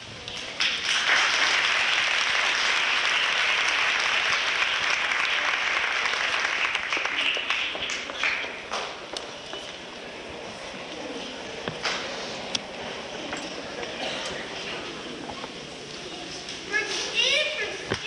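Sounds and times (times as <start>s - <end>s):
audience applauding: 0.4s - 8.8s.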